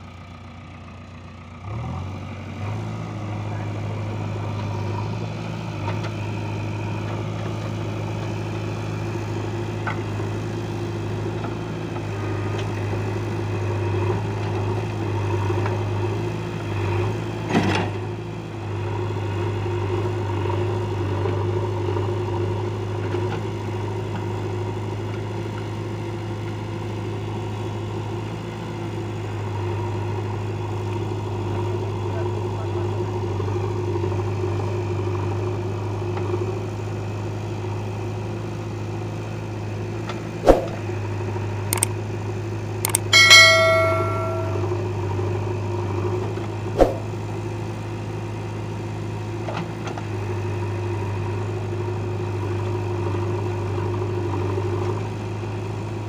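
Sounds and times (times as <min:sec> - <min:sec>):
diesel engine running: 0:00.0 - 0:43.1.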